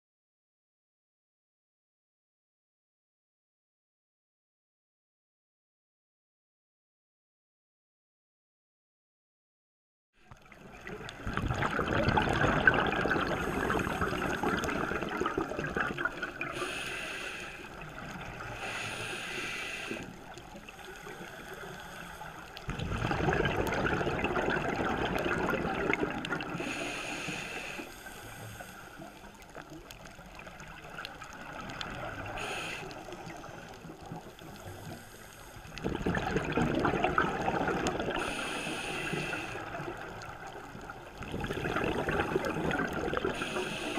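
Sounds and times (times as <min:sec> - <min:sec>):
underwater bubbles gurgling: 0:10.3 - 0:43.9.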